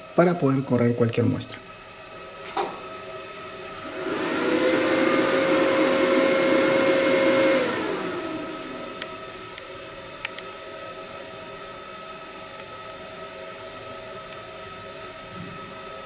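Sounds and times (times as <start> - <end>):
motor whine: 3.7 - 10.2.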